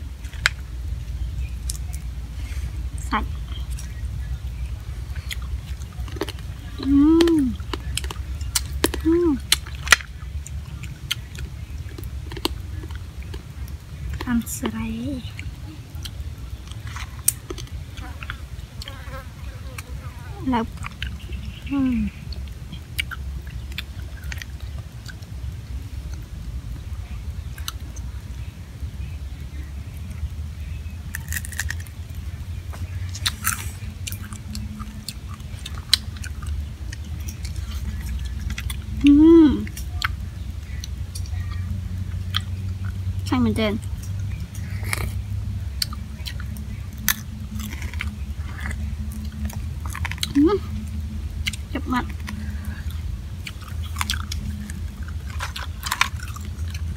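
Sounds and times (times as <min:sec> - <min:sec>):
steady low hum: 0:00.0 - 0:56.9
steady low rumble: 0:00.0 - 0:56.9
chewing and crunching: 0:00.1 - 0:28.5, 0:29.6 - 0:56.9
crunching crab shells: 0:05.2 - 0:14.4, 0:31.1 - 0:32.2, 0:44.0 - 0:56.9
crab shell cracking: 0:31.2 - 0:31.9.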